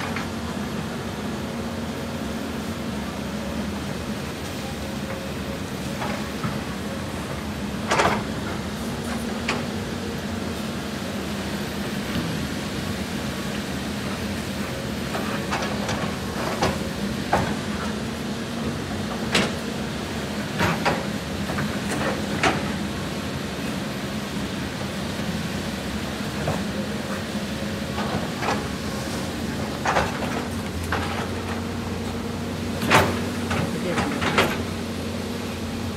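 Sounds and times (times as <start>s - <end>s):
excavator diesel engine running: 0.0s - 35.9s.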